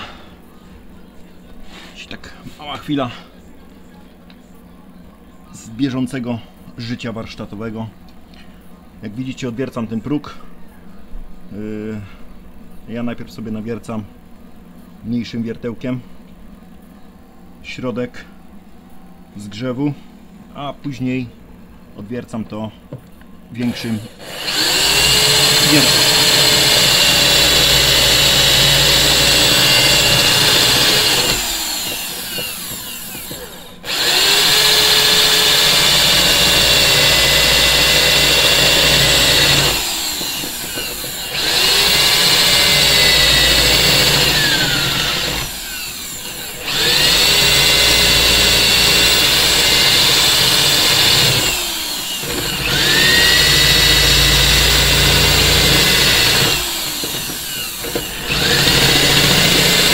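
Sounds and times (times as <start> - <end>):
power drill boring into steel: 23.6 - 59.9.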